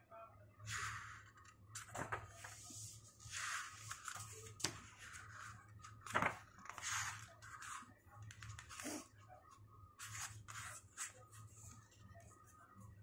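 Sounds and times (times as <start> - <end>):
book pages rustling: 1.8 - 9.1, 10.0 - 11.9.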